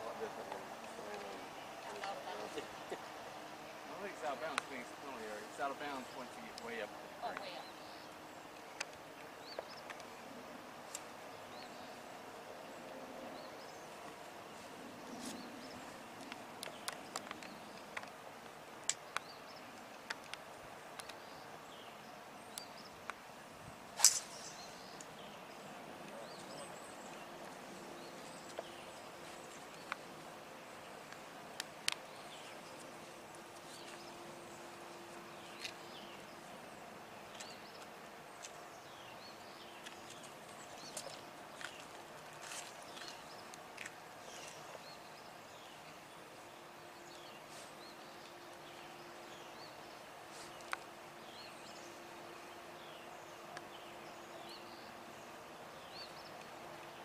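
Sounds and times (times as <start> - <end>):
faint birds chirping: 0.0 - 57.0
golf club striking ball: 24.0 - 24.9.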